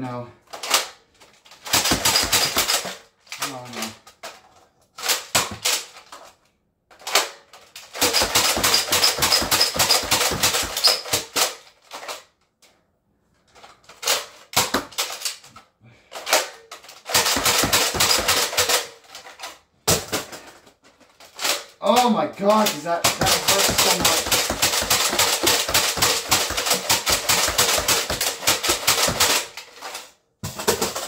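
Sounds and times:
foam dart blaster plastic clacking: 22.6s - 31.0s.

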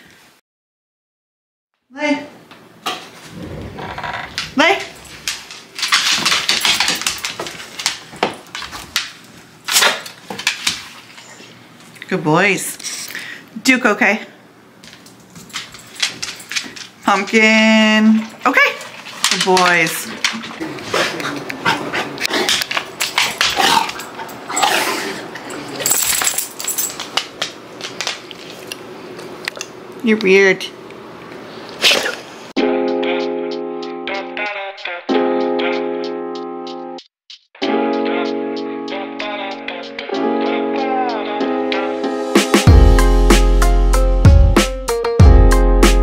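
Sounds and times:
dog snorts: 3.2s - 5.5s, 31.8s - 32.3s
dog claws clicking on wooden floor: 4.4s - 10.9s, 14.9s - 17.4s, 18.8s - 20.6s, 22.3s - 24.2s, 25.9s - 28.8s.

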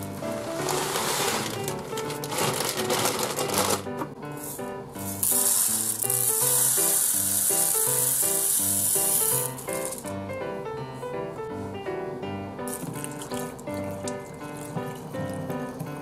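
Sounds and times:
background music: 0.0s - 16.0s
rice pouring into plastic bottle: 0.4s - 10.1s.

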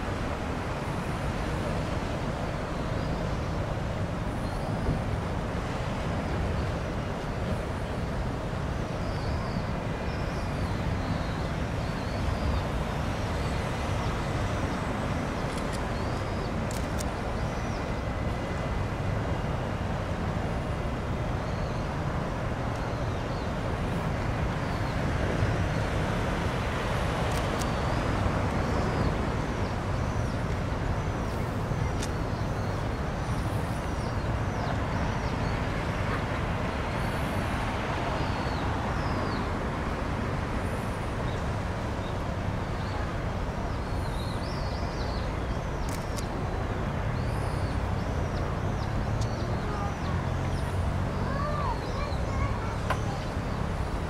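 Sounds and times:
faint clicks: 15.4s - 17.2s, 27.2s - 27.8s, 45.8s - 46.3s.

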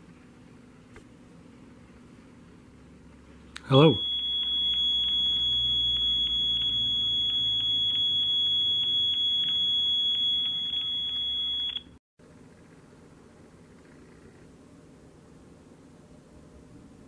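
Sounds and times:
high-pitched phone tone: 3.9s - 12.0s.

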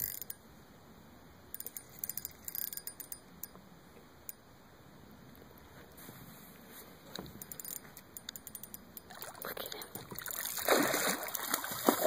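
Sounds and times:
fish splashing in water: 10.2s - 12.0s.

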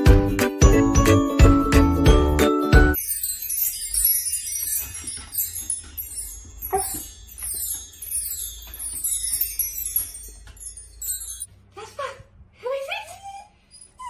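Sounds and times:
bar chimes shimmering: 2.1s - 11.5s.

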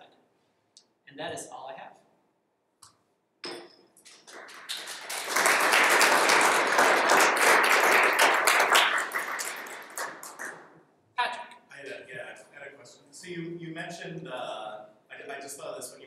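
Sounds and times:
audience applauding: 4.1s - 10.7s.

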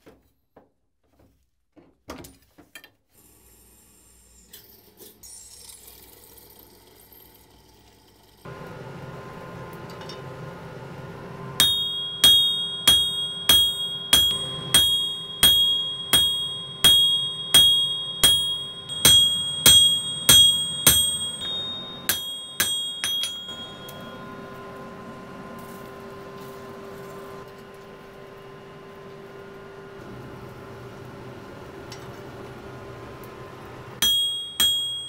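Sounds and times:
steady hum: 8.5s - 28.8s
hammer ringing on anvil: 11.6s - 24.9s, 34.0s - 35.0s.

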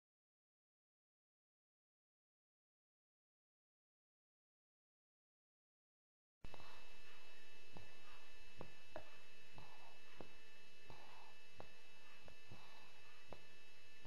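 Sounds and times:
steady hum: 6.4s - 14.0s
dog snoring: 6.5s - 13.5s.

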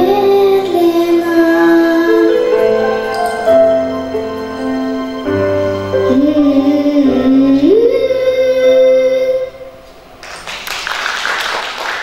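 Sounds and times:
girl singing: 0.0s - 3.6s, 5.9s - 9.8s
instrumental accompaniment: 0.0s - 9.2s
applause: 10.2s - 12.0s.

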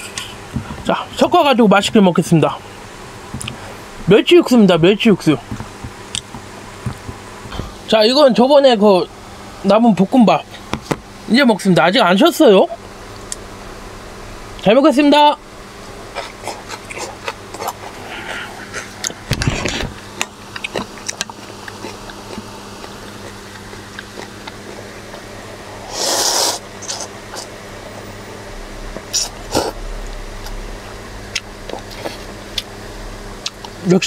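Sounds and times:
chewing: 16.1s - 25.3s, 31.3s - 32.7s, 33.4s - 33.9s.

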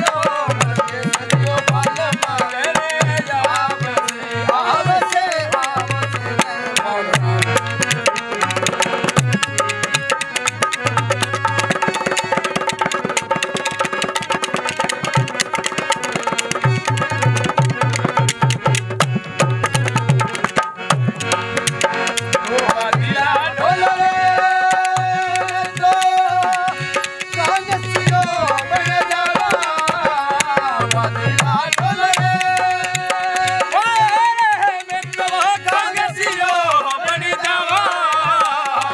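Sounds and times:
men singing: 0.0s - 9.7s, 22.1s - 38.9s
wooden clappers clicking: 0.0s - 23.0s, 24.4s - 38.9s
hand drum rhythm: 0.0s - 38.9s
harmonium: 0.0s - 38.9s.

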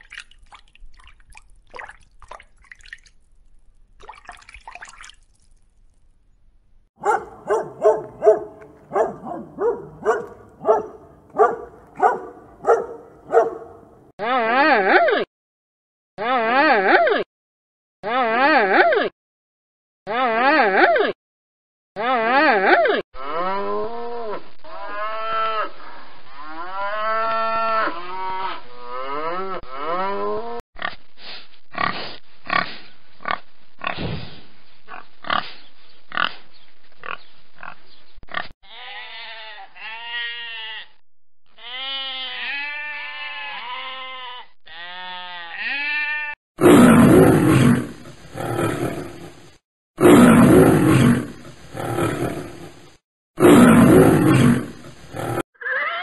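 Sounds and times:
calf bawling: 7.0s - 13.9s
sheep bleating: 38.6s - 46.4s
lion roaring: 46.6s - 49.4s, 50.0s - 52.8s, 53.4s - 55.4s.

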